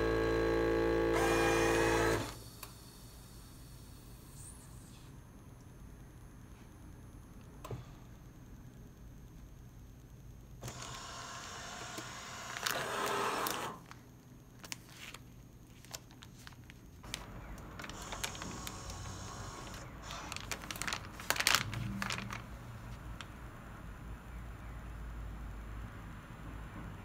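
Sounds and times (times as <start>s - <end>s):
vacuum sealer running: 0.0s - 3.1s, 10.6s - 14.0s, 17.1s - 22.3s
plastic bags crinkling: 14.6s - 22.6s.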